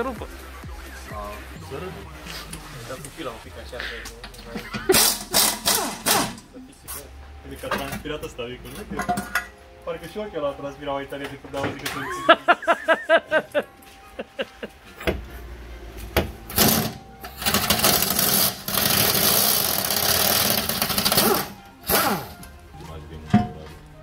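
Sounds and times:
pneumatic air tool bursts: 0:04.9 - 0:06.4, 0:16.5 - 0:22.4.

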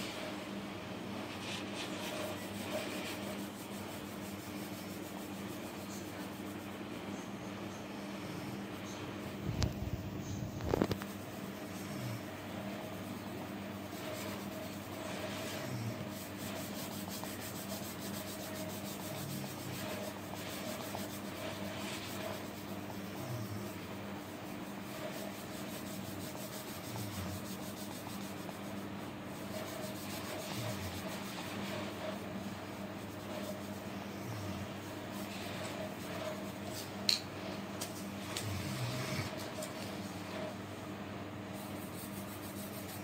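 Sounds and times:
low electrical hum: 0:00.0 - 0:43.0
pencil shading on paper: 0:12.5 - 0:36.8.

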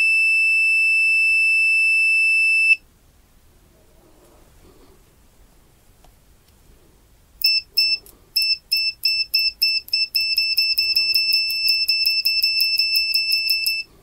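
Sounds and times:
meter continuity beeps: 0:00.0 - 0:02.8, 0:07.4 - 0:13.9
steady meter tone: 0:00.0 - 0:02.8, 0:07.4 - 0:14.0.

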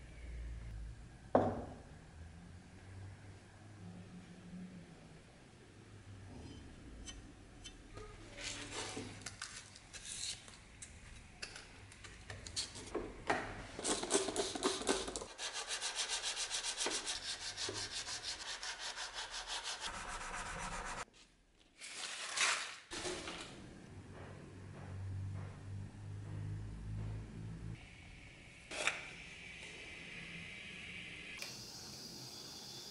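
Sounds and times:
chisel scraping on abrasive paper: 0:13.9 - 0:21.0.

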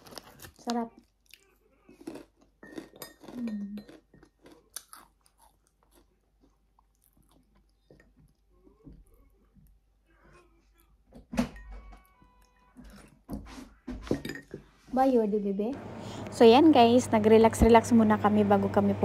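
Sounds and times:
crunching fish crackers: 0:00.0 - 0:08.6
quieter chewing: 0:00.0 - 0:11.1.

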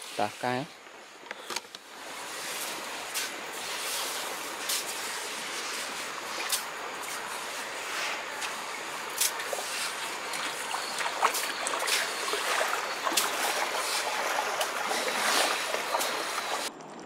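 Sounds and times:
water running and splashing: 0:01.9 - 0:16.7.

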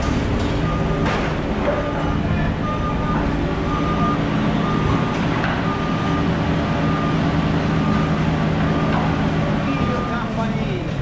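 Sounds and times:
engine running steadily: 0:00.0 - 0:11.0
warning beeper short beeps: 0:01.8 - 0:05.0, 0:09.6 - 0:10.5.

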